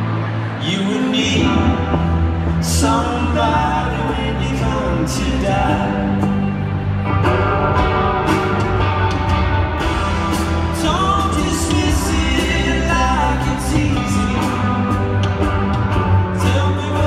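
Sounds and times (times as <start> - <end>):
strummed guitars: 0.0 - 17.0
steady drum beat: 7.8 - 17.0.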